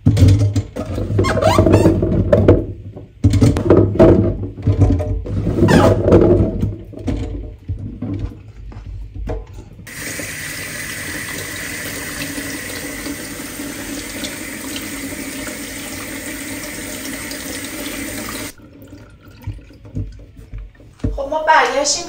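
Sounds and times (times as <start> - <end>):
tap water running into metal colander: 9.9 - 21.0.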